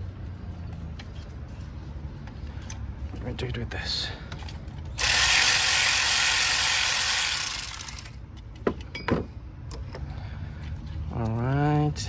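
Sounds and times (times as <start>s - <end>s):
ratchet wrench clicking: 5.0s - 8.2s.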